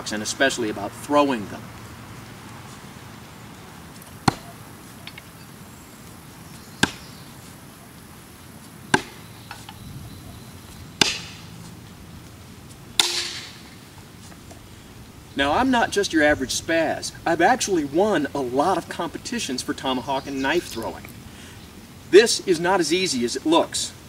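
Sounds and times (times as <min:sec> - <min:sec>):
tomahawks thunking into wood: 0:04.2 - 0:05.2, 0:06.8 - 0:07.1, 0:11.0 - 0:11.4, 0:13.0 - 0:13.6.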